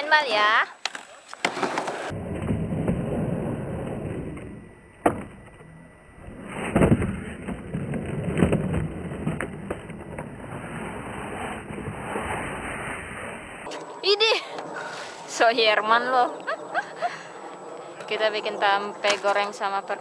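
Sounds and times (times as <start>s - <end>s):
skateboard wheels on concrete: 0.1s - 13.7s.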